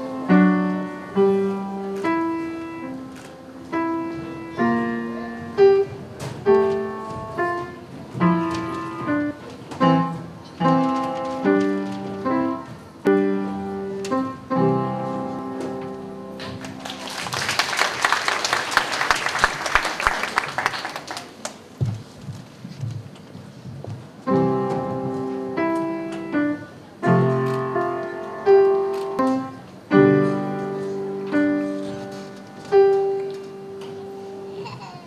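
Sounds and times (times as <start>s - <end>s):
solo piano melody: 0.0s - 17.1s, 24.1s - 34.8s
audience applause: 16.4s - 21.7s.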